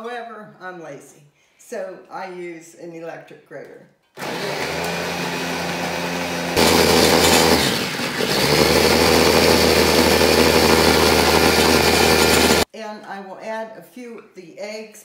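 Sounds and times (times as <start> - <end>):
electric food chopper running: 4.2 - 12.7.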